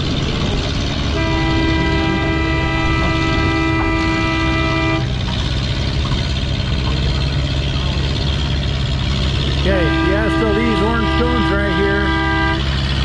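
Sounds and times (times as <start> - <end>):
tractor engine under load: 0.0 - 13.0
horn blast: 1.1 - 5.2, 9.6 - 13.0.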